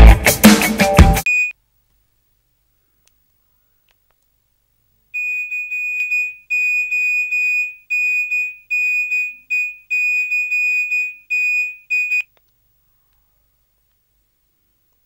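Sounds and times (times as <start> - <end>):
phone ringback tone: 5.2 - 12.3.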